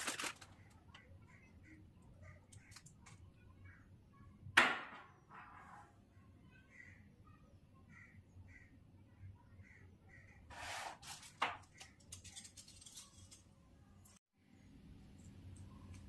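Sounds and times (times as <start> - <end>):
packaging rustle: 0.0 - 0.8.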